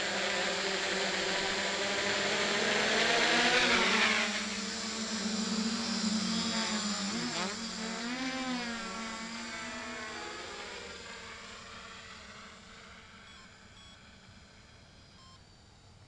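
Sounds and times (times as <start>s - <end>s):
drone propellers buzzing: 0.0s - 15.9s.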